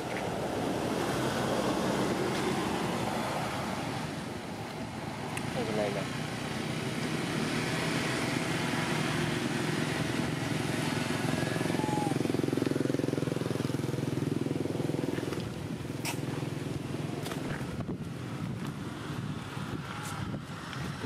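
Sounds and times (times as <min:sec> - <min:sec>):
vehicle engine running: 0:03.7 - 0:20.4.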